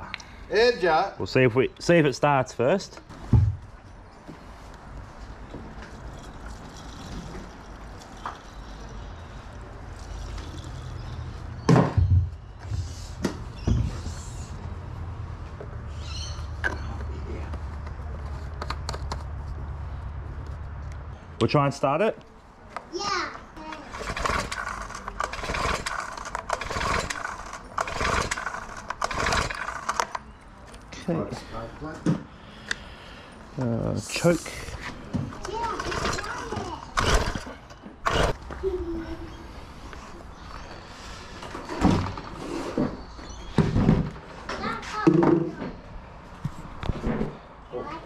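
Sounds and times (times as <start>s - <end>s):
thuds and knocks: 3.3s - 3.7s
recoil starter pull whirring: 23.8s - 30.3s, 35.4s - 38.4s.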